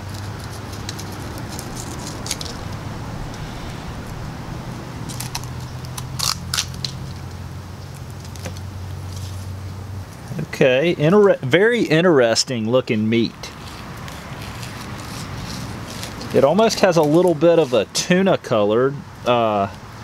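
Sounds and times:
steady low hum: 0:00.0 - 0:10.5.

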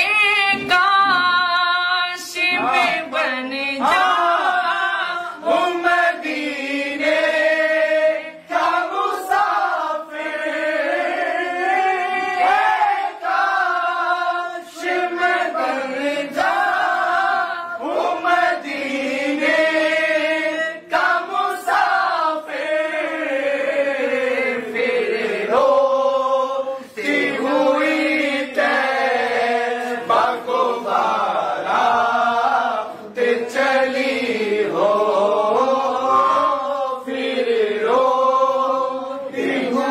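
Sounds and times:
man singing devotional song: 0:00.0 - 0:07.0
men's chorus singing: 0:02.4 - 0:39.9.

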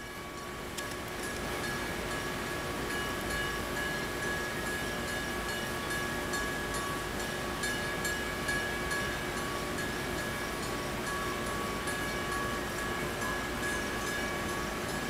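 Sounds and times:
diesel locomotive engine: 0:00.0 - 0:15.0
locomotive bell clanging: 0:00.0 - 0:15.0.

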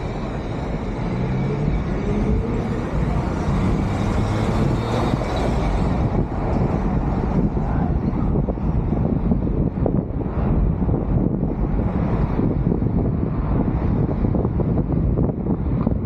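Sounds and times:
car engine accelerating: 0:00.0 - 0:14.8
road noise: 0:00.0 - 0:16.0
surrounding traffic: 0:00.0 - 0:16.0.

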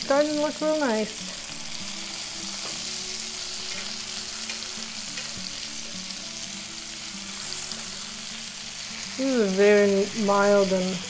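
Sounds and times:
fish sizzling in a frying pan: 0:00.0 - 0:11.0.

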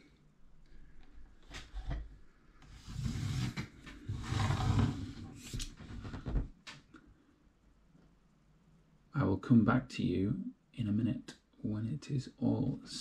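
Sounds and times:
laptop scraping on wooden table: 0:02.7 - 0:06.2.

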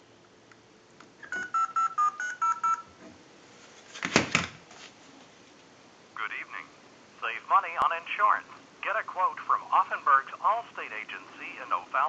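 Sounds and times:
touch-tone dialing beeps: 0:01.3 - 0:02.9.

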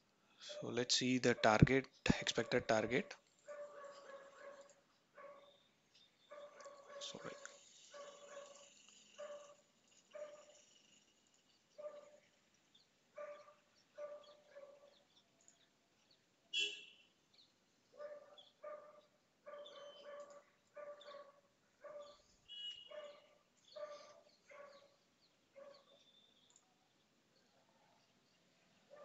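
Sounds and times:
faint dog barking: 0:02.3 - 0:05.6, 0:06.3 - 0:10.7, 0:11.8 - 0:12.3, 0:13.2 - 0:15.1, 0:18.0 - 0:25.0.

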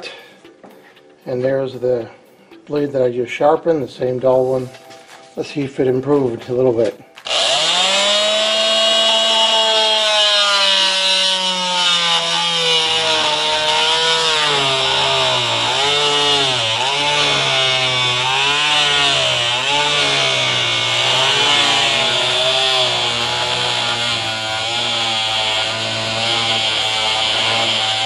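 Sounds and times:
multi-tool cutting plywood: 0:07.2 - 0:28.0.

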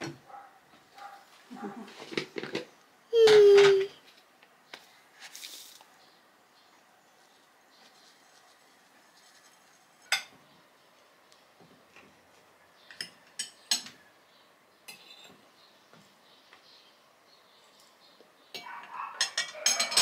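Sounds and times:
forks clinking on ceramic plates: 0:18.6 - 0:20.0.

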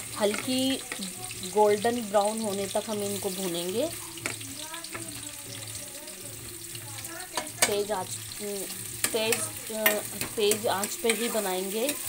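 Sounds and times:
onions sizzling in hot oil: 0:00.0 - 0:12.0
metal ladle clicking against pan: 0:00.2 - 0:01.1, 0:07.3 - 0:07.9, 0:09.0 - 0:12.0.

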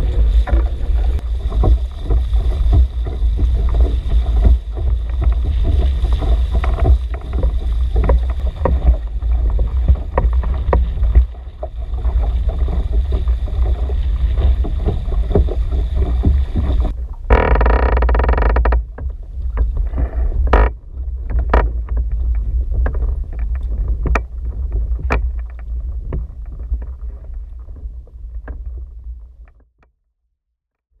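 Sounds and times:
knocks on canoe: 0:00.0 - 0:22.1
water lapping: 0:00.0 - 0:29.3
water rushing along hull: 0:00.0 - 0:29.6
wind rumbling on microphone: 0:00.0 - 0:29.7.

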